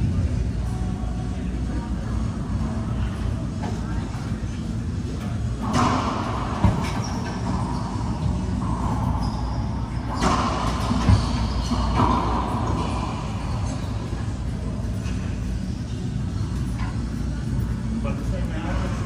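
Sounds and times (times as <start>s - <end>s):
racquetball hits: 5.6s - 14.1s.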